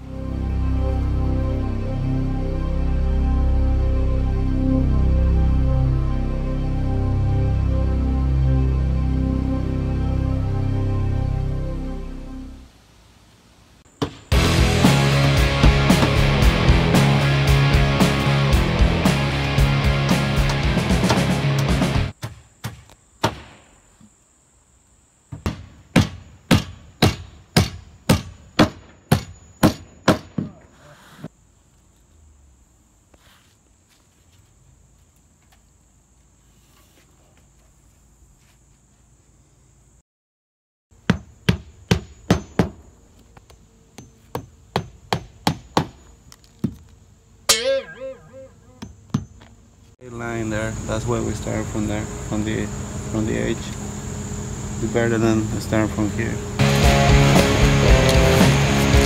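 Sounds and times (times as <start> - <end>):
hammer driving nails into shingles: 25.5 - 30.6.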